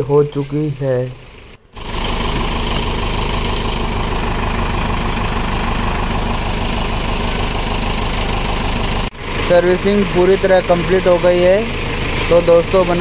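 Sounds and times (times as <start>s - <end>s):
machine running steadily: 0.0s - 13.0s
water spraying from hose: 1.8s - 9.2s.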